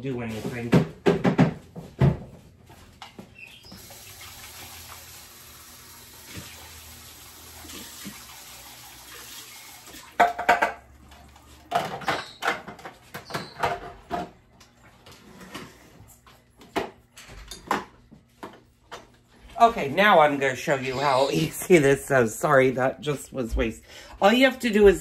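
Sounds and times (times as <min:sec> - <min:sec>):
water running: 0:03.6 - 0:11.7
dishes clattering: 0:10.2 - 0:11.0, 0:16.7 - 0:19.1.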